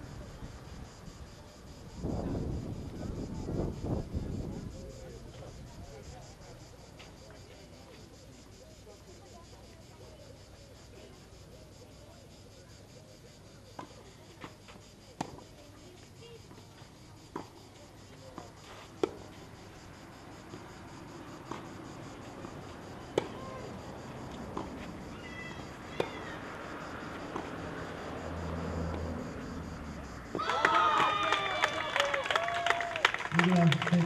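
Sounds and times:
murmur of spectators: 0.0 - 26.5, 30.0 - 34.0
tennis ball bouncing on clay: 21.4 - 23.6, 24.3 - 26.4, 27.2 - 27.6
racket striking tennis ball: 23.1 - 23.4.

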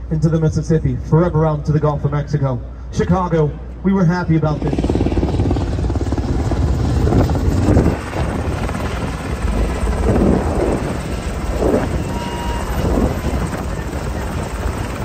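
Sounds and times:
helicopter rotor chopping: 4.1 - 15.0.

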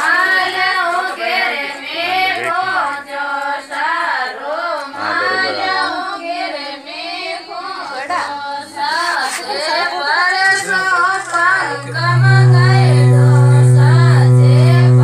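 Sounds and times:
high singing voice: 11.0 - 15.0
low instrumental backing: 11.6 - 15.0.

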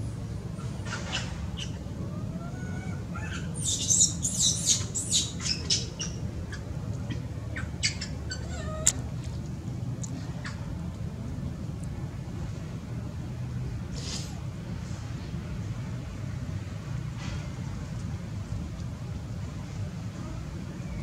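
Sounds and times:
low background rumble: 0.0 - 21.0
animal squeaks and squeals: 0.6 - 6.2, 7.1 - 9.0.

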